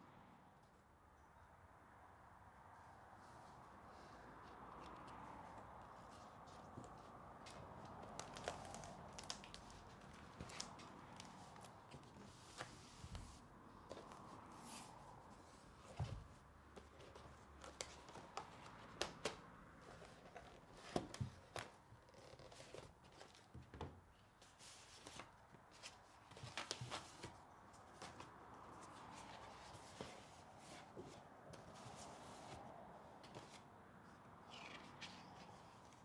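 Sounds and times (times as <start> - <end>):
paper rustling: 4.6 - 14.9, 24.4 - 32.6.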